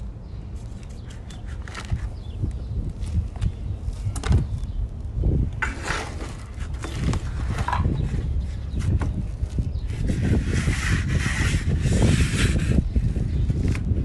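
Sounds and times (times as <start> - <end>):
straightedge scraping wet mortar: 5.6 - 6.6, 10.1 - 12.8
trowel scraping mortar: 5.6 - 6.6, 10.1 - 12.8.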